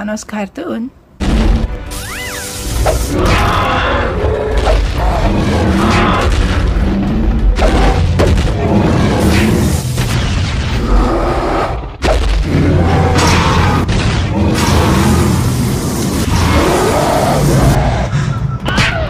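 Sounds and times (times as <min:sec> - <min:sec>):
cartoon action music: 0:01.2 - 0:10.6
heavy booms and impacts: 0:02.9 - 0:16.8.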